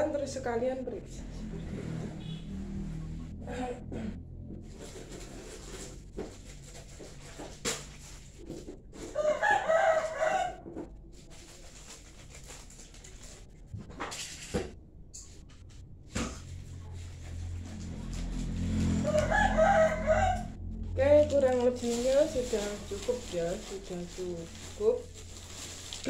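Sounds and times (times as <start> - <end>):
rooster crowing: 9.1 - 10.7, 18.7 - 20.8.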